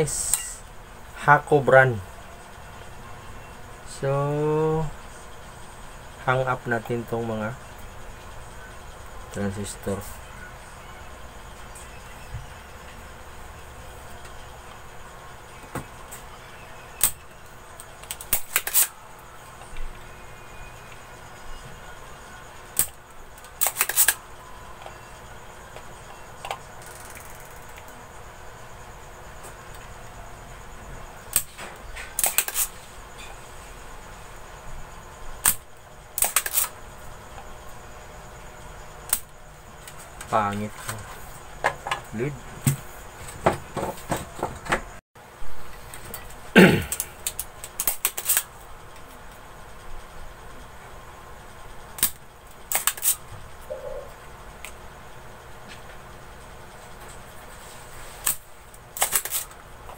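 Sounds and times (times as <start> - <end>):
desoldering pump snap: 18.0 - 18.9, 23.6 - 24.2, 31.3 - 32.7, 36.2 - 36.7, 39.1 - 39.3, 52.0 - 53.2, 59.0 - 59.6.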